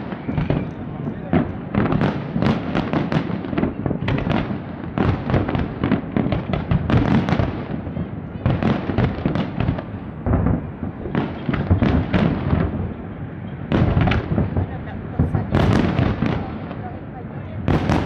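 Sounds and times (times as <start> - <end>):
fireworks bangs and crackling: 0.0 - 18.0
low rumble of booms: 8.4 - 13.0.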